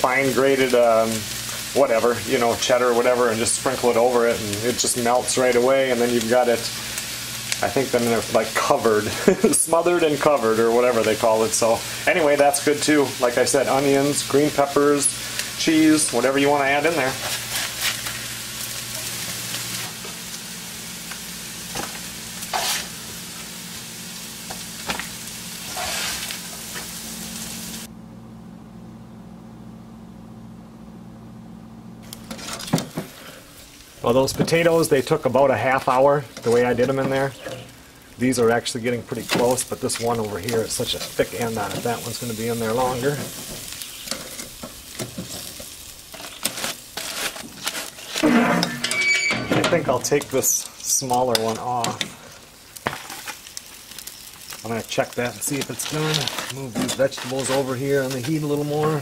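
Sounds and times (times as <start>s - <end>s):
potatoes sizzling in frying pan: 0.0s - 27.9s, 32.0s - 49.0s, 49.7s - 59.0s
low steady hum: 15.2s - 45.2s
spatula scraping pan: 16.8s - 20.1s, 21.7s - 23.0s, 25.6s - 26.9s, 32.1s - 32.9s, 42.8s - 49.3s
person speaking: 34.0s - 43.3s, 49.5s - 52.2s, 54.6s - 59.0s.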